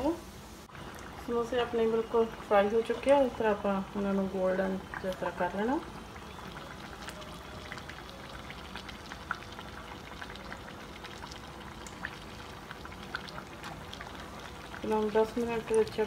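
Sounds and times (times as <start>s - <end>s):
food deep-frying in oil: 0.0s - 16.0s
small pops and crackles: 6.2s - 16.0s.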